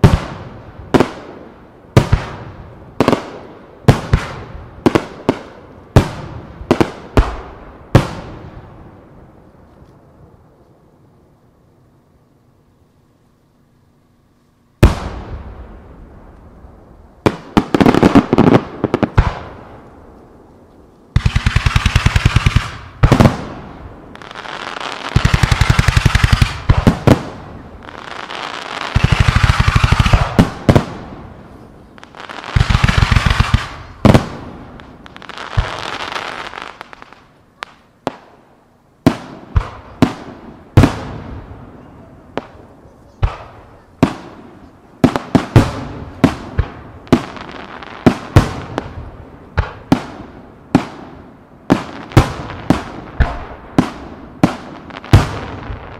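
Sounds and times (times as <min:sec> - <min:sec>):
crackling hiss: 0:00.0 - 0:55.9
rapid firework pops: 0:51.7 - 0:55.5.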